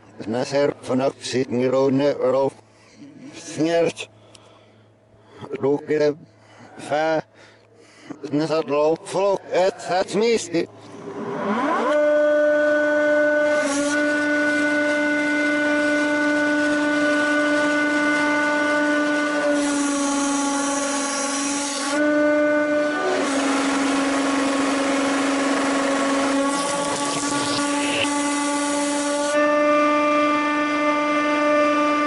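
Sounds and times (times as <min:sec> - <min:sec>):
reversed hydraulic pump hum: 0:09.8 - 0:32.0.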